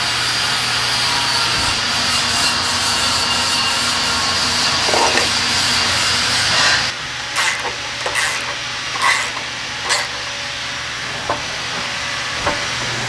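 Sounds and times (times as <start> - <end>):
hand ratchet rasping: 7.4 - 10.3.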